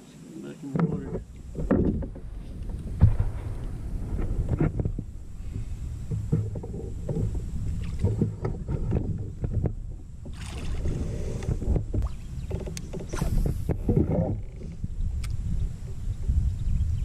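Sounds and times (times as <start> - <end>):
knocks against kayak hull: 0.7 - 3.4
water splashing and sloshing: 0.7 - 14.8
wind rumble on microphone: 0.8 - 17.0.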